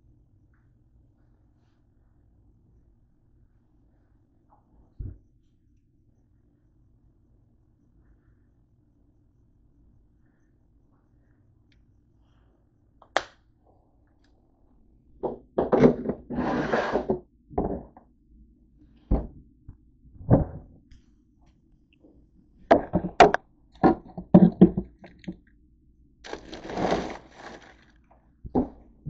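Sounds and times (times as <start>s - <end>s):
objects knocking and clunking: 15.2s - 16.4s, 17.0s - 18.0s, 20.2s - 20.8s, 22.7s - 25.4s, 28.5s - 28.9s
plastic packets rustling: 26.3s - 28.0s.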